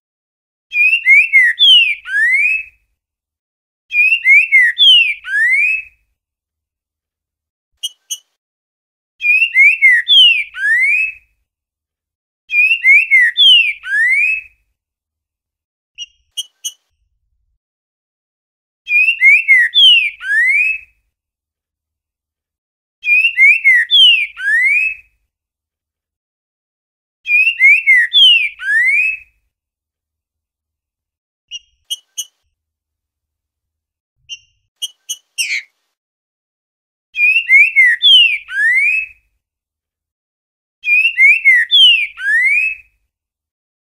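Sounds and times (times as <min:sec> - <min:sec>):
bird whistling song: 0:00.7 - 0:02.8, 0:03.9 - 0:06.0, 0:07.8 - 0:08.3, 0:09.2 - 0:11.3, 0:12.5 - 0:14.6, 0:16.0 - 0:16.8, 0:18.9 - 0:20.9, 0:23.0 - 0:25.1, 0:27.3 - 0:29.4, 0:31.5 - 0:32.4, 0:34.2 - 0:35.7, 0:37.2 - 0:39.2, 0:40.8 - 0:43.0
short clipped bird notes: 0:07.8 - 0:08.4, 0:16.0 - 0:17.0, 0:31.5 - 0:32.5, 0:34.2 - 0:35.8.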